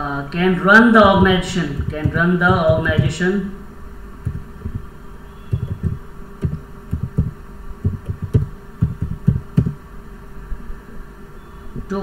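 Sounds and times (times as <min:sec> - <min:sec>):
faint steady hum: 0:00.0 - 0:12.0
muffled keyboard keystrokes: 0:01.0 - 0:03.1, 0:04.3 - 0:04.8, 0:05.5 - 0:09.8.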